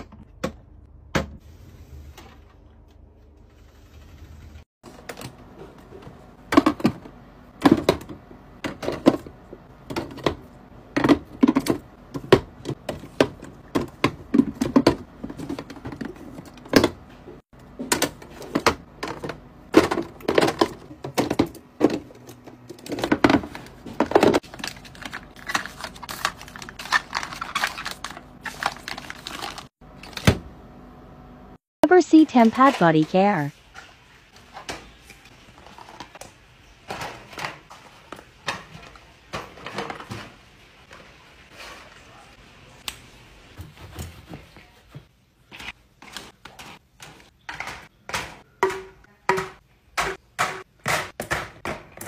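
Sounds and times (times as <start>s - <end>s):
plastic bottles clicking and knocking: 17.8s - 28.0s
foil packets crinkling: 24.4s - 29.7s.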